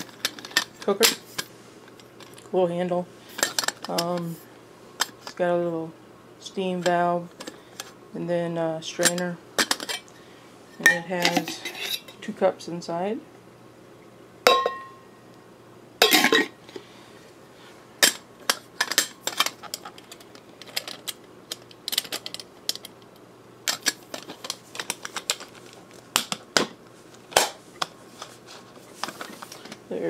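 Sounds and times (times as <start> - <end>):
cookware clattering: 14.5 - 15.0
metal pot clinking: 14.5 - 15.0.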